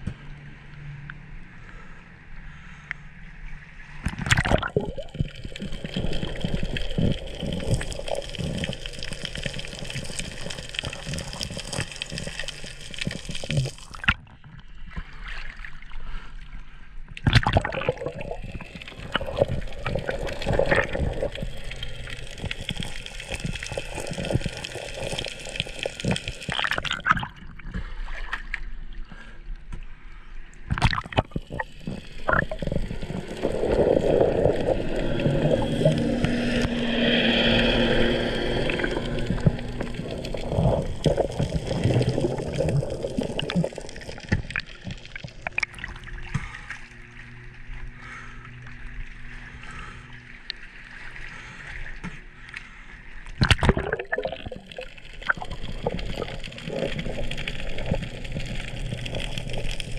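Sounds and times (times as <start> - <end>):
muffled underwater hiss and crackle: 3.5 - 15.4, 17.1 - 27.2, 29.9 - 59.9
water splashing and gurgling: 3.6 - 30.0, 30.6 - 59.9.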